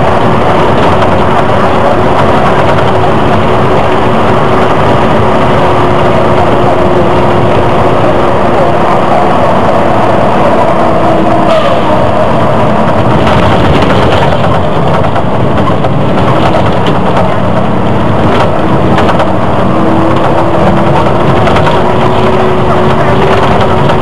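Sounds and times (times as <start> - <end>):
bus engine and road noise: 0.0 - 24.0
whine shifting in pitch: 0.0 - 24.0
sharp rattles: 9.6 - 24.0.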